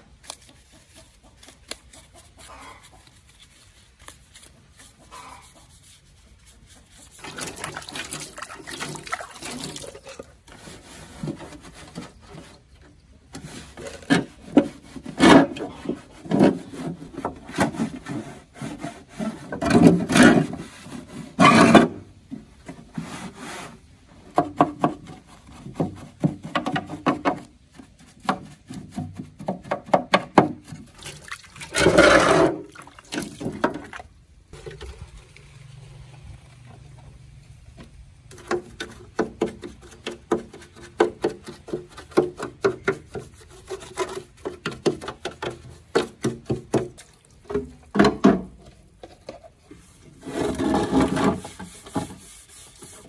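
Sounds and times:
rubbing and scraping on hard surface: 0.0 - 9.8, 10.5 - 22.0, 22.6 - 30.0, 38.3 - 47.0, 49.0 - 53.0.

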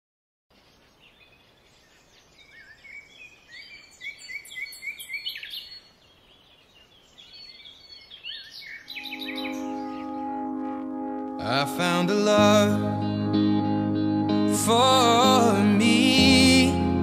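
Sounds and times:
birds chirping and singing: 0.5 - 10.6.

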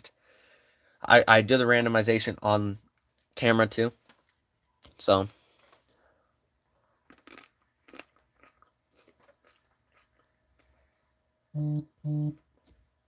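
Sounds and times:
phone vibrating buzz: 11.6 - 12.4.

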